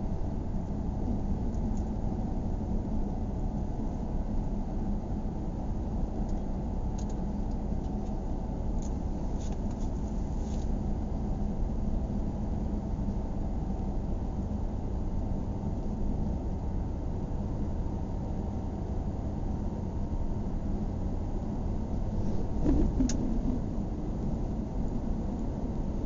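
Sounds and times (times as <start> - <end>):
car engine and tyres rumbling: 0.0 - 26.0
low hum: 10.1 - 26.0.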